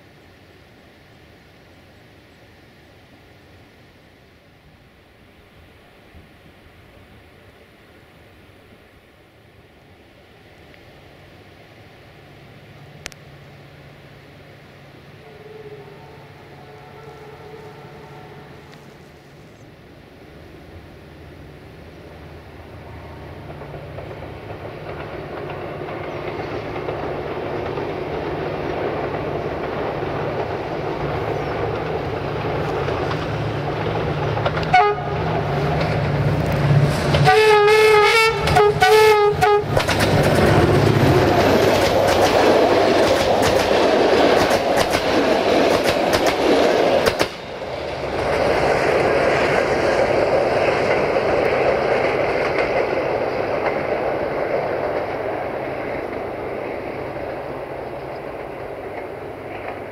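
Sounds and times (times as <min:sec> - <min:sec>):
diesel locomotive engine rumble: 0:00.0 - 0:59.9
train horn blasts: 0:15.2 - 0:19.0, 0:34.6 - 0:35.5, 0:37.2 - 0:39.8
train wheels clattering on rails: 0:23.3 - 0:59.9.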